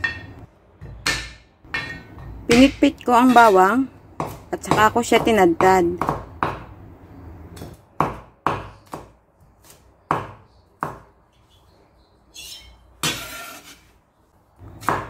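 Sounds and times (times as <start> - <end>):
knife chopping on cutting board: 4.2 - 6.7, 7.6 - 11.1, 14.7 - 15.0.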